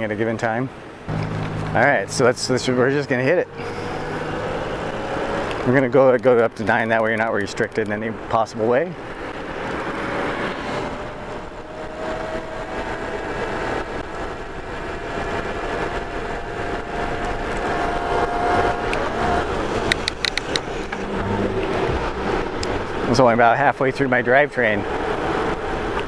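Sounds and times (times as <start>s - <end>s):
wind and tyre noise: 0.0s - 26.0s
electric bike motor whining: 3.5s - 5.6s, 9.3s - 23.0s
rapid clicks: 19.7s - 21.7s.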